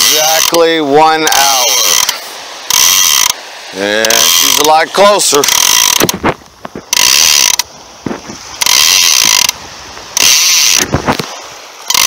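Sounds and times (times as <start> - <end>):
fishing reel ratcheting: 0.0 - 3.4, 4.0 - 6.2, 6.9 - 7.7, 8.6 - 9.6, 10.2 - 10.9.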